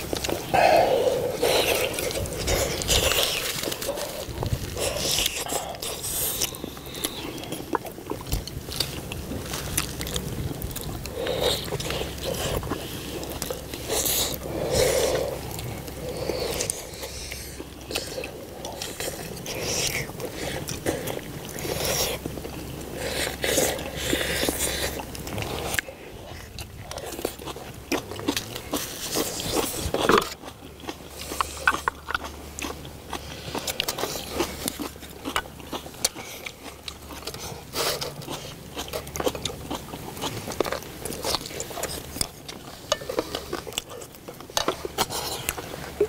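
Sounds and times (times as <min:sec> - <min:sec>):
mouth smacking and sucking: 0:00.0 - 0:08.4
people chewing and slurping: 0:00.0 - 0:46.0.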